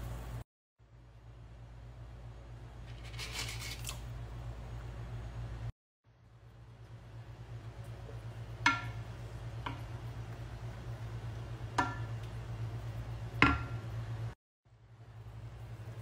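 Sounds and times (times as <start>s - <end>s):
steady low hum: 0.0s - 16.0s
wooden spoon knocking a pot: 8.6s - 10.0s, 11.7s - 12.3s, 13.4s - 13.9s.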